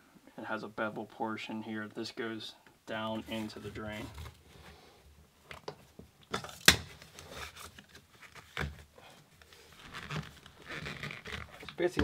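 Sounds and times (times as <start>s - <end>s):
plastic parts rubbing: 9.5s - 12.0s.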